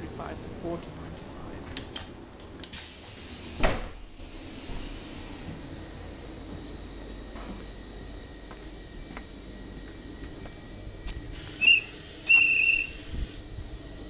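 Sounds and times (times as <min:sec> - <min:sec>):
steady high whine: 0:00.0 - 0:14.0
hissing air: 0:02.6 - 0:05.7, 0:11.1 - 0:14.0
whistle blasts: 0:11.4 - 0:13.2.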